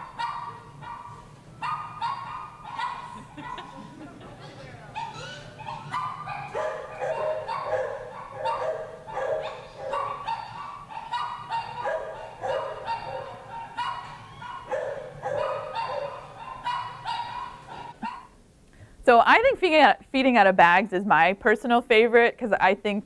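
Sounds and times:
dogs barking: 0.0s - 4.0s, 4.9s - 18.4s.

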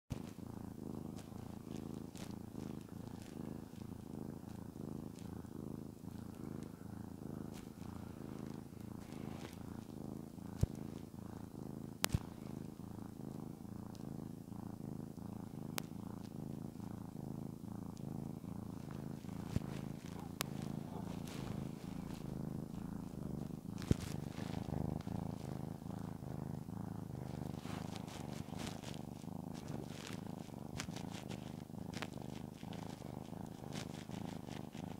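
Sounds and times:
cat purring: 0.0s - 34.9s
hand rustling on fur: 18.3s - 34.8s.

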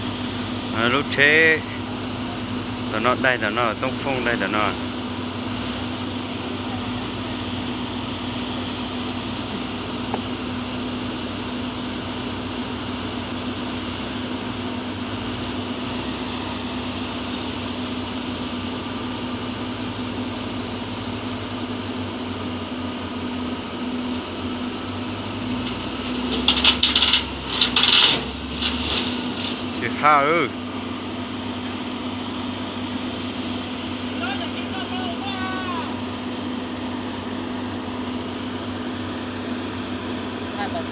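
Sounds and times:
excavator diesel engine running: 0.0s - 40.9s
loud clattering knocks: 25.5s - 29.8s.

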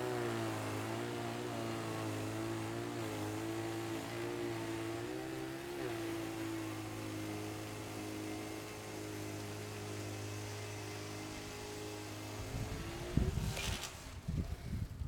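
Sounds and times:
snow blower motor humming: 0.0s - 15.0s.

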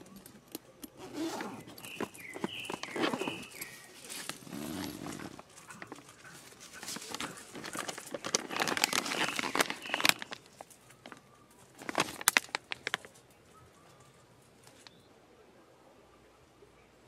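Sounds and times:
fabric and plastic rustling: 0.0s - 15.0s
plastic package crinkling: 1.5s - 13.3s.

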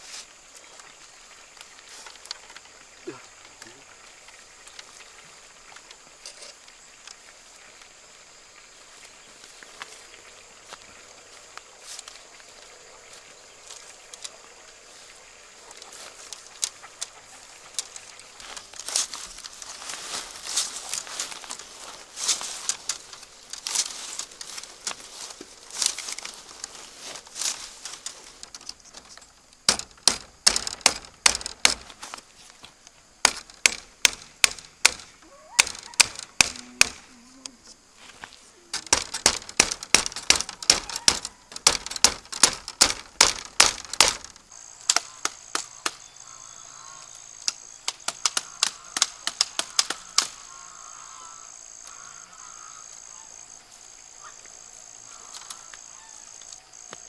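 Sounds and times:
high insect drone: 0.0s - 57.0s
knocks of chopping bamboo: 29.6s - 32.1s, 33.2s - 37.0s, 38.7s - 46.0s, 47.4s - 50.4s
geese honking: 35.2s - 37.1s, 40.4s - 41.5s, 44.8s - 47.3s, 48.2s - 53.4s, 54.2s - 56.5s.

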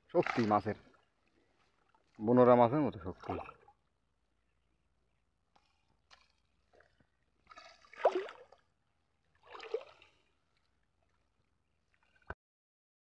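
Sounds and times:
hands splashing in water: 0.1s - 2.2s, 5.6s - 8.7s, 9.4s - 10.3s.

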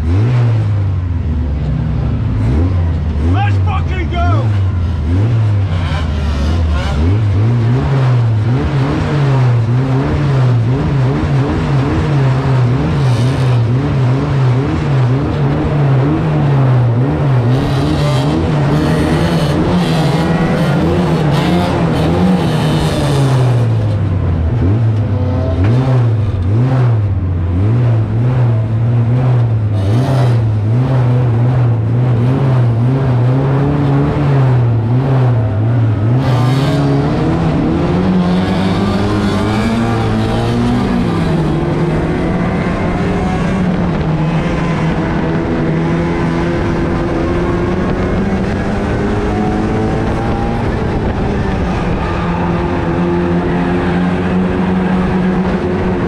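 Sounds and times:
race car engine: 0.0s - 56.0s.

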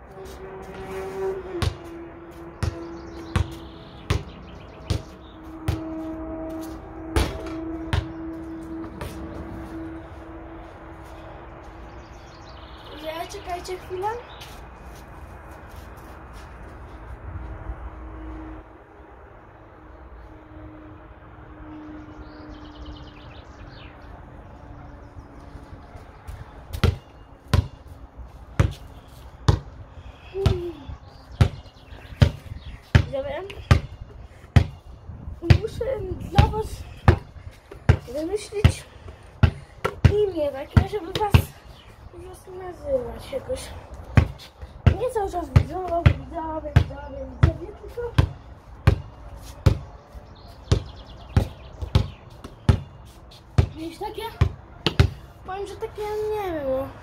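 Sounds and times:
ball striking hoop: 1.6s - 1.9s, 2.6s - 6.0s, 7.1s - 8.3s, 26.7s - 27.8s, 54.4s - 55.2s
basketball bouncing: 1.6s - 1.9s, 2.5s - 6.0s, 7.2s - 8.3s, 26.7s - 27.8s, 28.6s - 29.7s, 31.4s - 34.9s, 35.5s - 41.6s, 44.1s - 49.9s, 50.7s - 53.0s, 53.6s - 55.2s.

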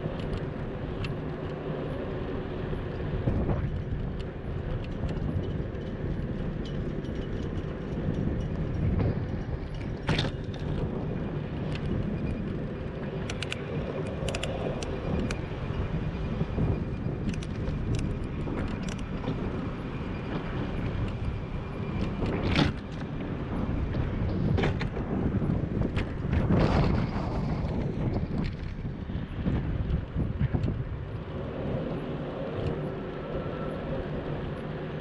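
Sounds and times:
bicycle clicks and rattles: 0.0s - 2.0s, 2.7s - 15.9s, 16.6s - 31.2s
wind and tyres rumbling: 0.0s - 35.0s
car traffic: 27.7s - 35.0s.

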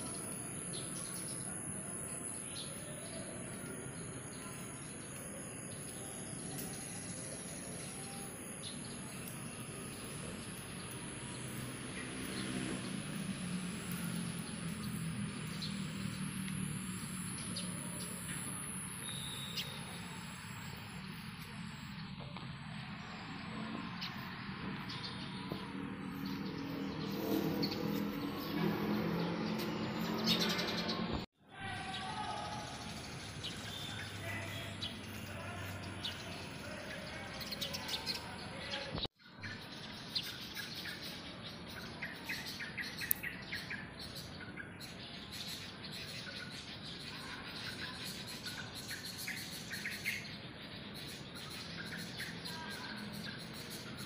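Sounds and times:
distant traffic hum: 0.0s - 54.0s
outdoor background noise: 0.0s - 54.0s
small birds chirping: 0.0s - 54.0s
short bird chirps: 18.1s - 20.7s.

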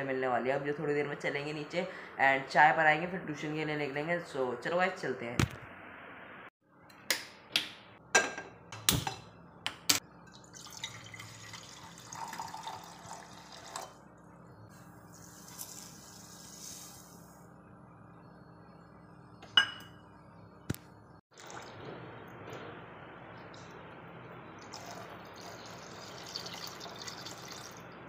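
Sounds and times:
water heating hiss: 15.1s - 17.4s.

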